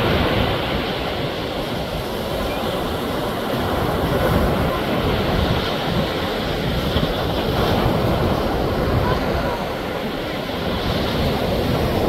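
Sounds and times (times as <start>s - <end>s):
waves breaking on beach: 0.0s - 12.0s.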